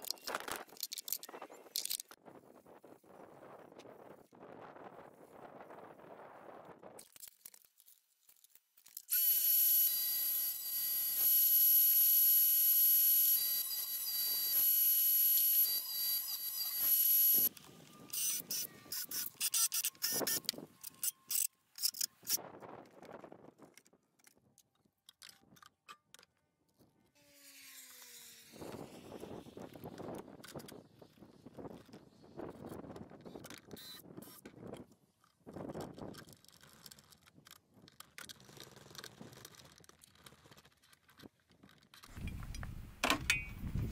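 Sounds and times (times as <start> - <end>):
cordless drill driving screws: 9.1 - 17.5, 18.1 - 22.0
table saw cutting wood: 9.1 - 17.5, 27.2 - 29.2.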